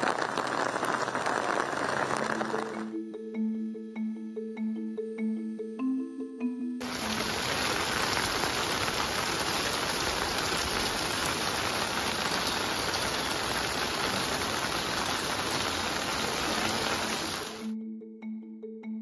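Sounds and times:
torrential rain pouring: 0.0s - 2.9s, 6.8s - 17.7s.

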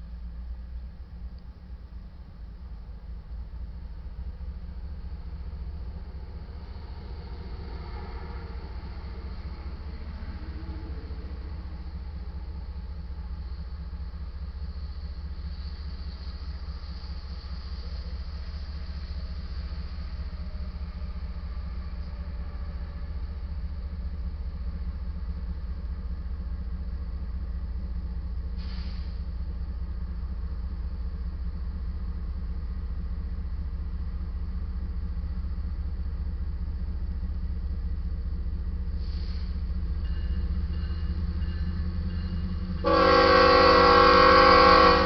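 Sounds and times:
diesel locomotives rumbling: 0.0s - 45.0s
locomotive air horn: 42.8s - 45.0s.

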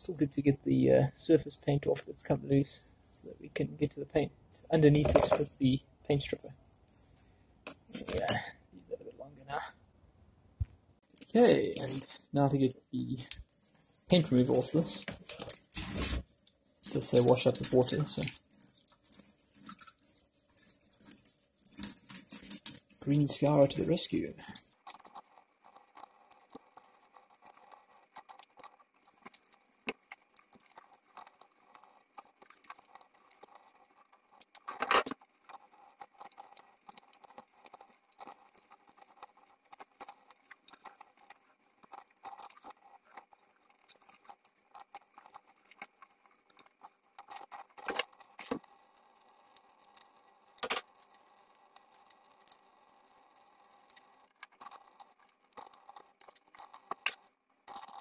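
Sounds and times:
tap water running into sink: 13.2s - 33.7s.

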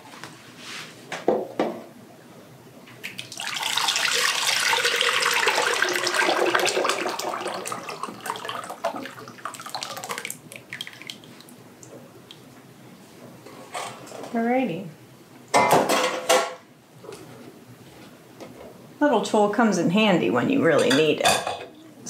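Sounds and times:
thick puree pouring: 3.1s - 12.5s.

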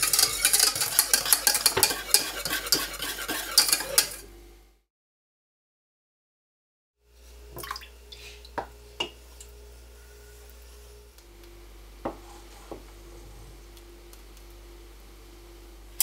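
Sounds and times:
wooden spoon stirring in saucepan: 0.0s - 4.3s
steady low hum: 7.0s - 16.0s.

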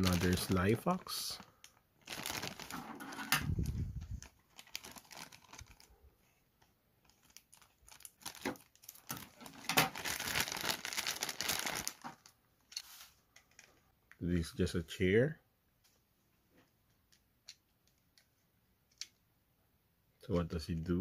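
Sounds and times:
plastic bag crinkling: 0.0s - 6.0s, 7.0s - 12.4s.

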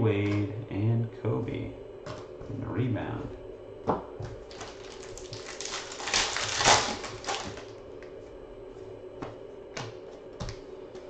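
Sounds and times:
foil wrapper tearing and crinkling: 4.5s - 7.8s.

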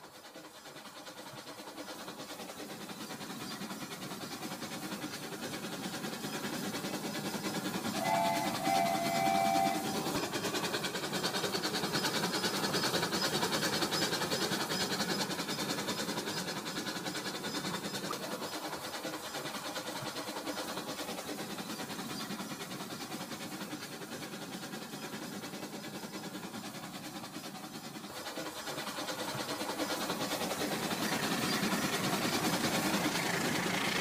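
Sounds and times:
toy train motor whir: 0.0s - 34.0s
wheel rattle on track: 0.0s - 34.0s
toy train horn toots: 8.0s - 10.0s.

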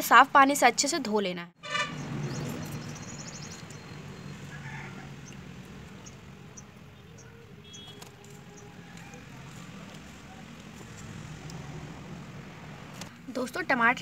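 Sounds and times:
faint bird chirps: 1.8s - 5.4s.

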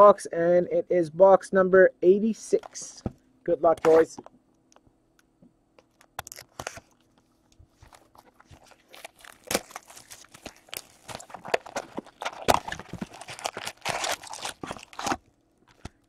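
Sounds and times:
plastic wrap crinkling: 5.9s - 16.0s.

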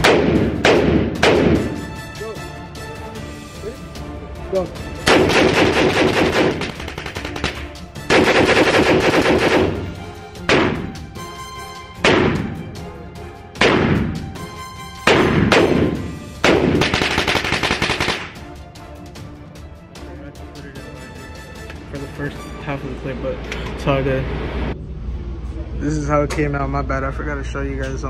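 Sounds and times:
rapid gunfire echoing indoors: 5.1s - 9.9s, 15.1s - 18.4s.

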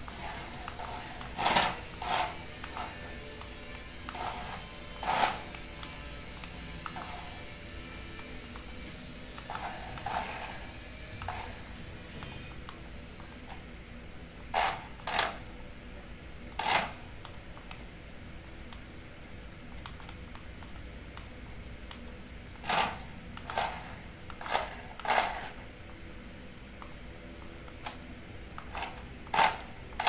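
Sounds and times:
faint steady hum: 0.0s - 30.0s
toy car scraping on concrete: 0.1s - 5.9s, 6.8s - 7.5s, 9.3s - 11.8s, 14.6s - 15.4s, 16.6s - 17.0s, 22.6s - 25.6s, 28.7s - 30.0s.

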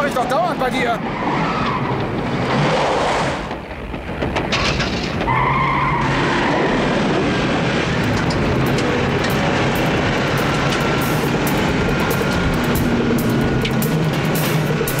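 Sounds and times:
steady engine whine: 0.0s - 15.0s
tyres skidding on dirt: 0.0s - 15.0s
car engine running hard: 3.5s - 15.0s.

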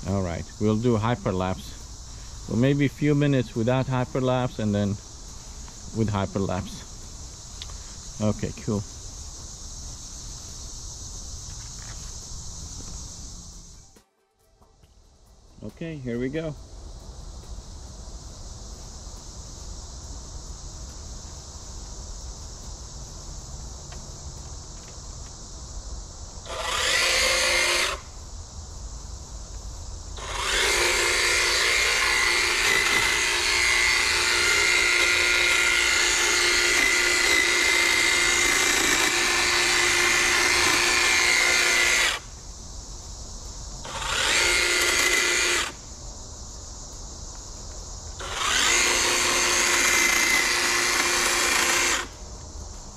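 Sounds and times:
insects chirping: 0.0s - 52.9s
hedge trimmer cutting bushes: 26.4s - 28.1s, 30.2s - 42.3s, 43.8s - 45.8s, 48.2s - 52.2s.

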